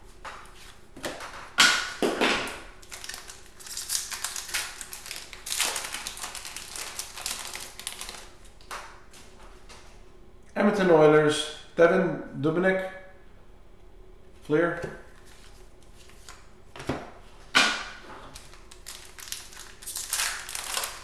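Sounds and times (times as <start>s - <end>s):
foil wrapper ripping: 2.8s - 8.4s, 18.3s - 21.0s
foil wrapper crinkling: 2.8s - 8.6s, 18.3s - 21.0s.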